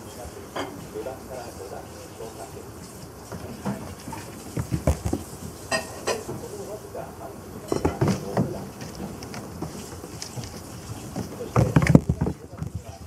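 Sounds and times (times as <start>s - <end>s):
kittens thumping on wooden floor: 11.1s - 13.0s.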